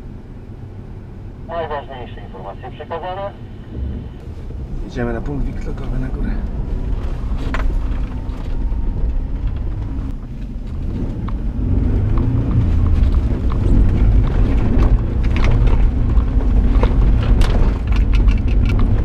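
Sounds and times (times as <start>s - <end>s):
engine and road rumble: 0.0s - 19.0s
knocks and rattles: 12.0s - 19.0s.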